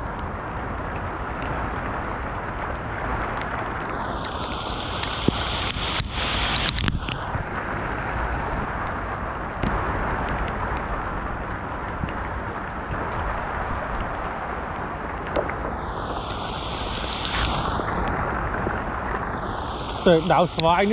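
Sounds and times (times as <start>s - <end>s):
steady rushing noise: 0.0s - 20.9s
higher hiss: 3.8s - 7.3s, 15.6s - 18.3s, 19.2s - 20.9s
sharp clicks: 4.2s - 7.2s.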